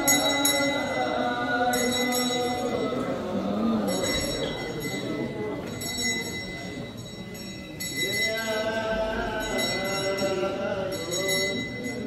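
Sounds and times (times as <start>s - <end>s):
voices singing mourning song: 0.0s - 4.7s.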